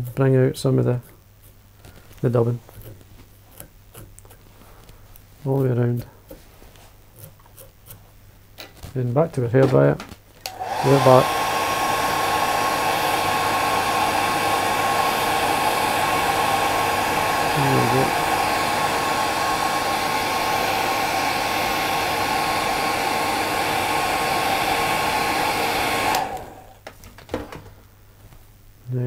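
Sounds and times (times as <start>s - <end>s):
hair dryer whining: 10.4s - 26.9s.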